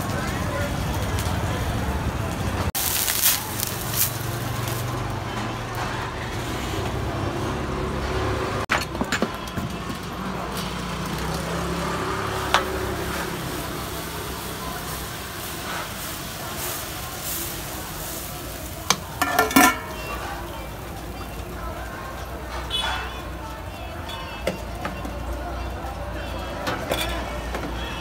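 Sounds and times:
road traffic rumble: 0.0s - 28.0s
utensils tapping iron griddle: 14.9s - 21.4s.

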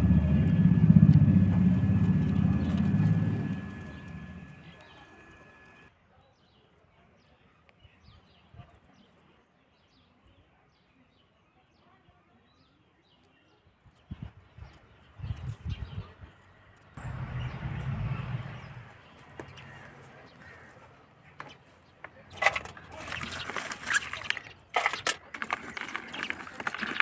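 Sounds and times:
loud low rumble: 0.0s - 5.9s, 17.0s - 18.9s
small birds chirping: 0.4s - 27.0s.

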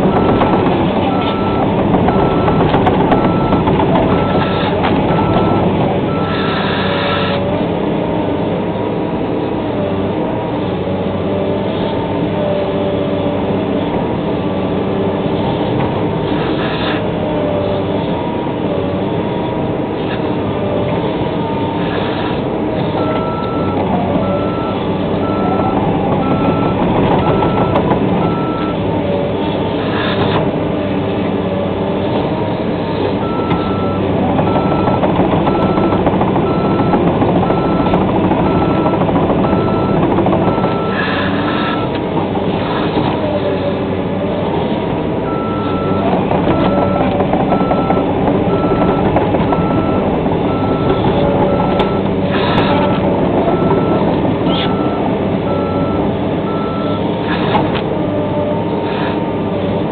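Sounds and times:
backup alarm beeping: 0.0s - 6.4s, 23.0s - 28.8s, 33.2s - 41.0s, 45.3s - 52.1s
diesel engine running: 0.0s - 59.9s.

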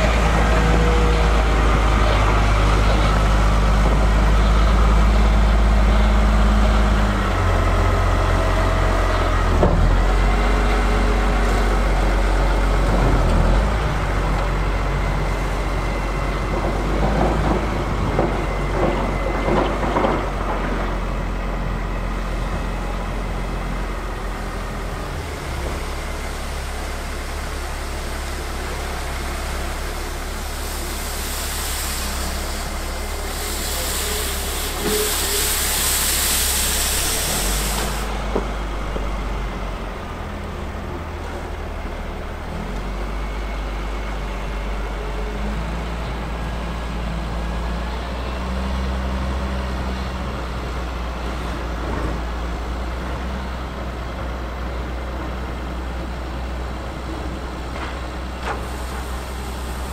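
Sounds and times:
diesel engine running: 0.0s - 59.9s
loud hiss: 30.3s - 38.3s, 58.6s - 59.9s.

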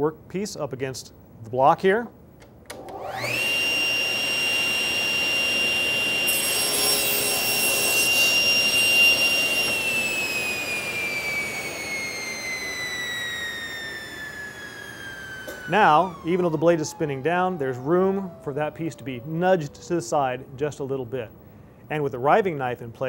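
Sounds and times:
saw blade spinning down: 2.8s - 20.2s
table saw whine: 2.8s - 21.3s
saw cutting a board: 3.0s - 17.0s.

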